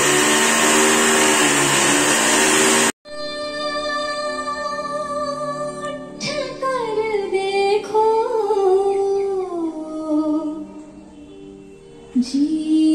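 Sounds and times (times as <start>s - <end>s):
woman singing slow melody: 3.1s - 10.9s, 12.1s - 12.9s.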